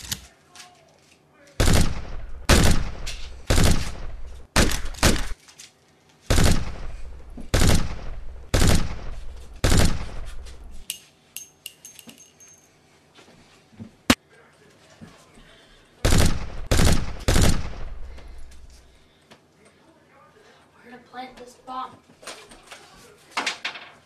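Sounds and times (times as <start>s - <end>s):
loud gunshots: 1.6s - 5.4s, 6.3s - 10.3s, 16.0s - 18.2s.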